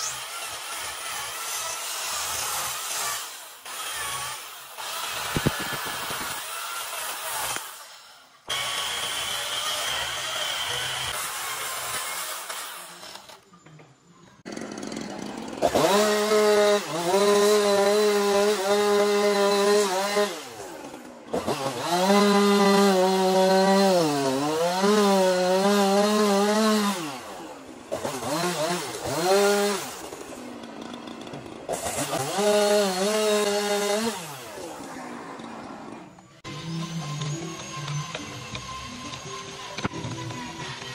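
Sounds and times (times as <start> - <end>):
chainsaw cutting wood: 0.0 - 13.5, 14.4 - 40.9.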